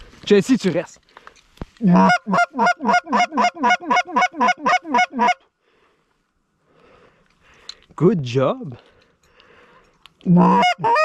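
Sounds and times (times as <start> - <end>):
goose honking: 1.8 - 5.5, 10.3 - 11.0.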